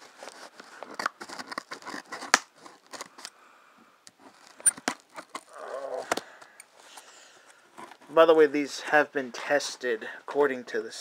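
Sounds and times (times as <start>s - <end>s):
plastic wrapping rustling: 0.0s - 3.3s.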